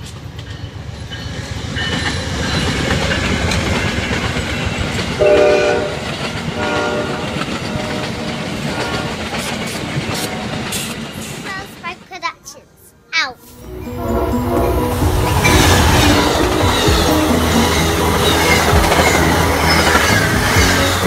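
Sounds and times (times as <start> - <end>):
train wheels clacking on rails: 0.0 - 12.1, 14.7 - 21.0
train horn blast: 5.2 - 9.3.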